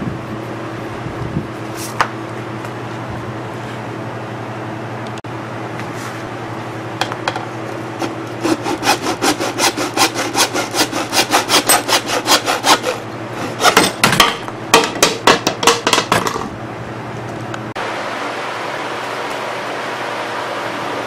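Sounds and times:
hacksaw cutting plastic pipe: 8.0s - 15.8s.

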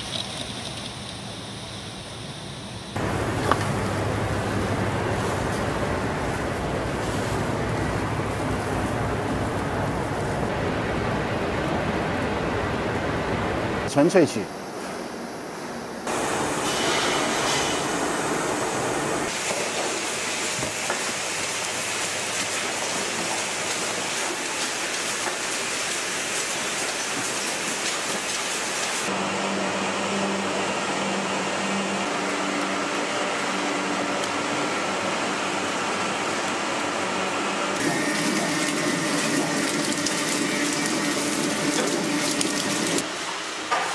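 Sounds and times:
factory conveyor machinery: 0.0s - 43.9s.

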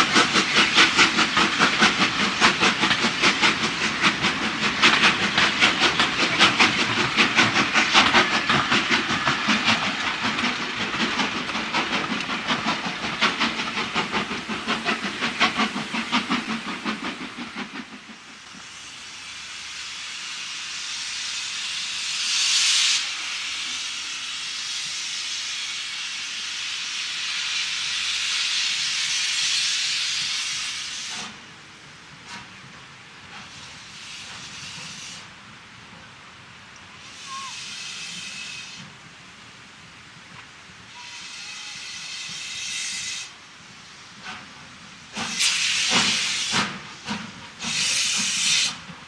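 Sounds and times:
train clattering over rail joints: 0.0s - 18.7s, 44.2s - 49.0s
steam hissing: 0.0s - 35.6s, 36.3s - 39.9s, 40.6s - 49.0s.

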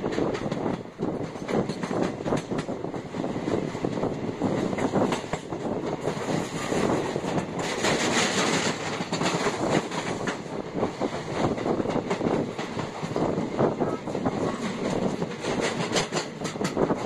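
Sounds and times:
train rumbling on track: 0.0s - 17.0s
wheels clicking over rails: 3.8s - 17.0s.

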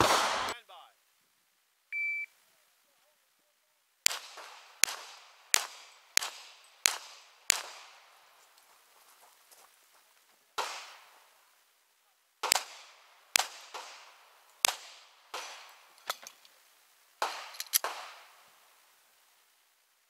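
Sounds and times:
pistol shots with echo: 0.0s - 0.6s, 4.0s - 8.4s, 10.6s - 11.3s, 12.4s - 16.0s, 17.2s - 18.4s.

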